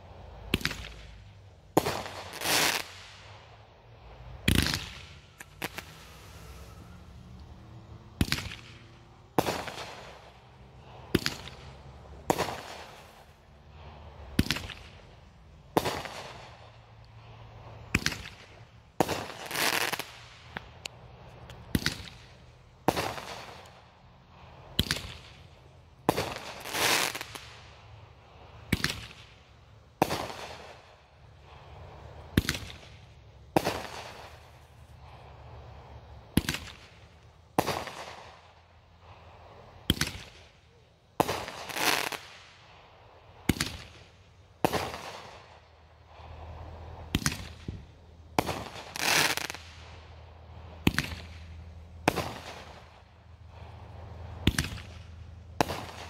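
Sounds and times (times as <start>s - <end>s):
hissing crackle of fireworks: 0.0s - 56.0s
fireworks bangs with rumble: 8.2s - 10.2s, 48.4s - 49.8s, 52.0s - 52.8s, 54.4s - 56.0s.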